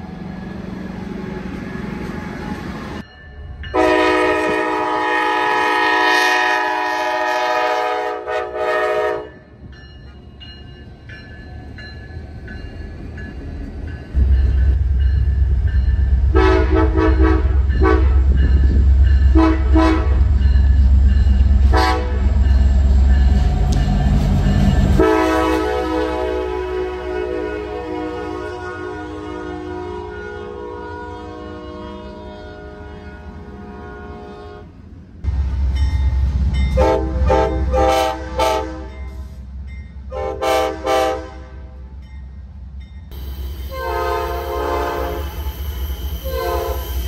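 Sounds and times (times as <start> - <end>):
train passing rumble: 0.0 - 47.0
train horn blasts: 3.7 - 9.5, 16.2 - 18.5, 19.3 - 20.4, 21.6 - 22.4, 24.9 - 34.7, 36.7 - 39.3, 40.1 - 41.9, 43.1 - 47.0.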